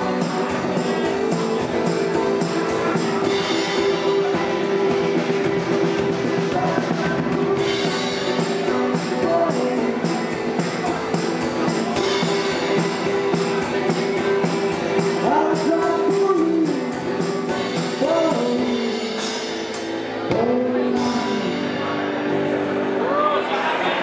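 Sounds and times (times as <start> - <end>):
drum kit beat: 0.0 - 22.0
banjo: 0.0 - 24.0
person singing: 0.0 - 24.0
rock band playing: 0.0 - 24.0.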